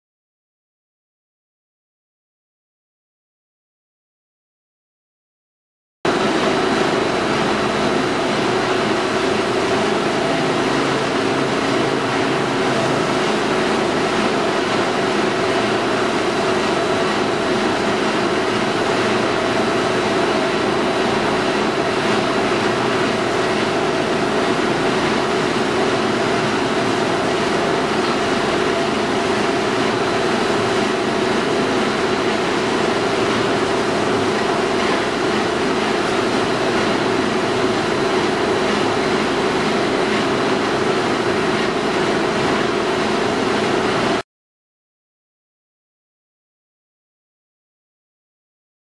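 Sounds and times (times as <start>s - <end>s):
veneer peeling lathe running: 6.2s - 44.1s.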